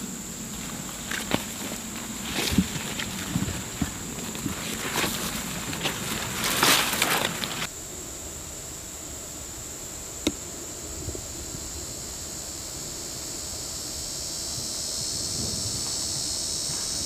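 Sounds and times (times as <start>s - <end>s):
leaves and twigs rustling: 0.0s - 7.7s
high insect buzz: 0.0s - 17.0s.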